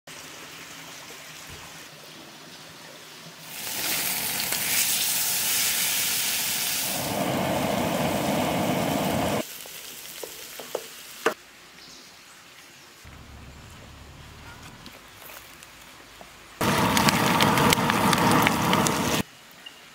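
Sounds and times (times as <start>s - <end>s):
fish sizzling in hot oil: 3.4s - 11.4s, 16.6s - 19.3s.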